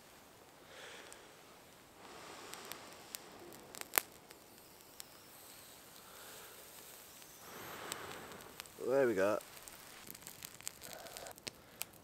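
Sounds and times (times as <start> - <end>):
breath blown into tinder: 5.6 - 9.8.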